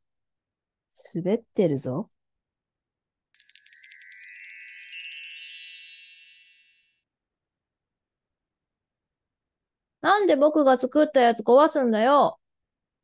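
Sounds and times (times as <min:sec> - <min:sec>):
high wind chimes ringing: 0:03.4 - 0:06.9.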